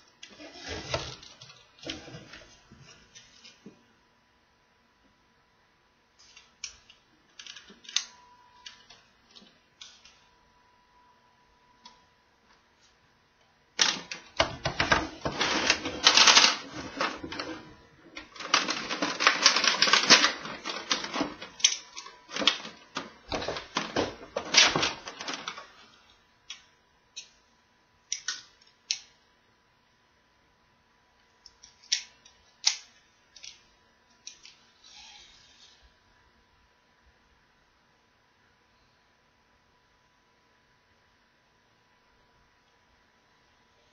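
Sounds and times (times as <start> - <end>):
plastic toys clicking and clattering: 13.8 - 17.6, 18.2 - 25.7.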